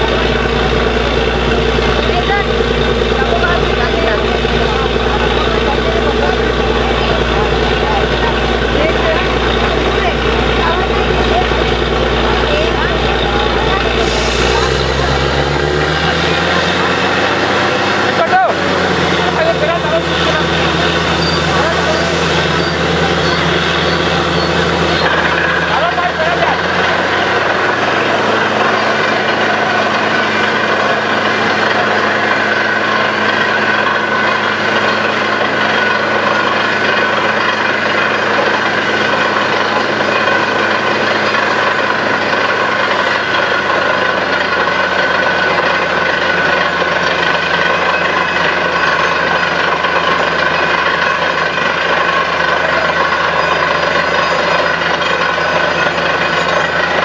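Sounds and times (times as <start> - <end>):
drilling rig engine: 0.0 - 57.0
water and mud hissing: 14.0 - 15.6.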